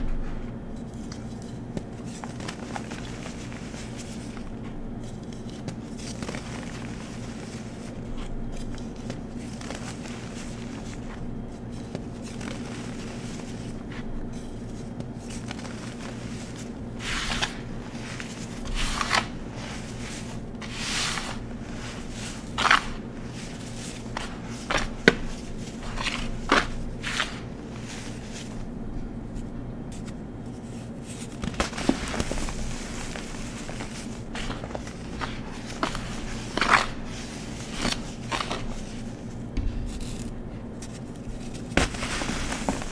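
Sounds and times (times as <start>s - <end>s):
low steady hum: 0.0s - 42.9s
hands crumbling chalky powder: 0.1s - 42.9s.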